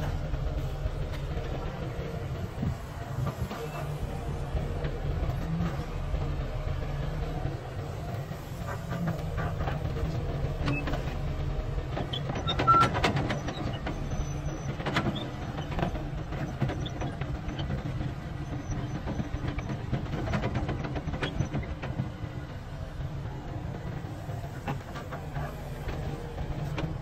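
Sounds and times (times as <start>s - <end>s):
excavator diesel engine running: 0.0s - 27.0s.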